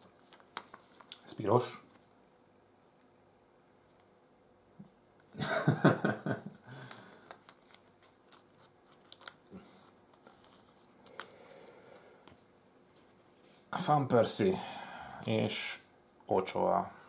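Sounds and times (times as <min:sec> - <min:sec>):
crinkling plastic and foil: 0:00.0 - 0:02.0, 0:06.9 - 0:11.7.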